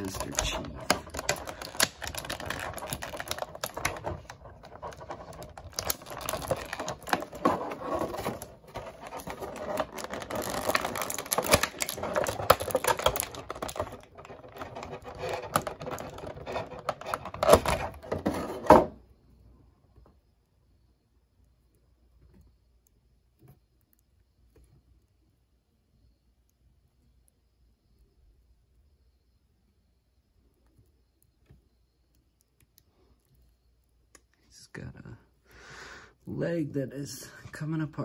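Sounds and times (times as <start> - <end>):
plastic parts clicking and rustling: 0.0 - 19.0.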